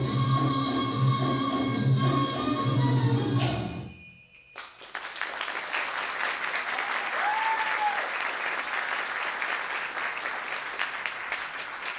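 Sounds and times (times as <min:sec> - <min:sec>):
audience applauding: 0:04.6 - 0:11.9
crowd cheer: 0:05.0 - 0:11.9.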